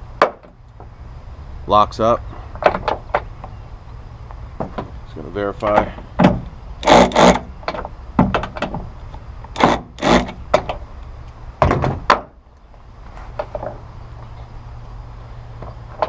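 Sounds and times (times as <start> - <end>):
cordless drill driving screws: 6.8 - 7.5, 9.6 - 10.4.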